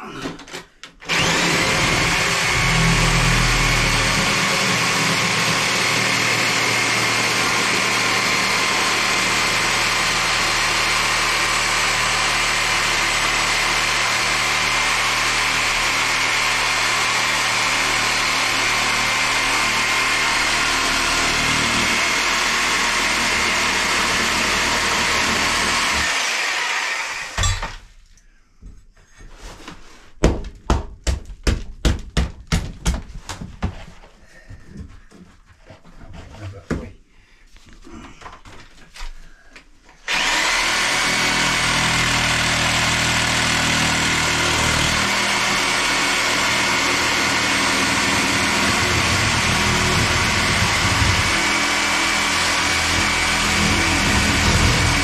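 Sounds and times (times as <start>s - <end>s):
reciprocating saw cutting wood: 1.1s - 27.5s, 40.0s - 55.0s.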